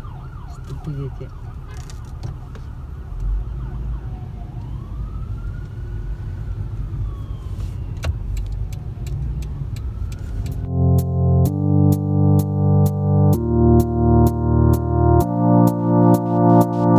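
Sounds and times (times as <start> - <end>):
distant ambulance siren wailing: 0.0 - 8.1, 8.7 - 12.4
electronic music: 10.5 - 16.9.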